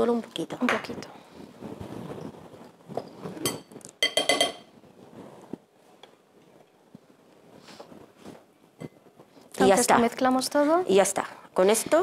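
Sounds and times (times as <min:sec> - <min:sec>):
spoon clinking glass bowl: 0:03.4 - 0:04.7.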